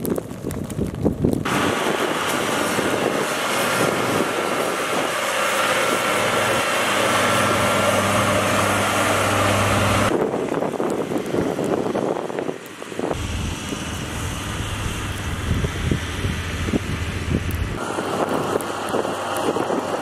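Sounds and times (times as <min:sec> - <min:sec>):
wind gusts on microphone: 0:00.0 - 0:20.0
diesel engine running: 0:01.4 - 0:20.0
hiss of blade through snow: 0:01.5 - 0:10.1.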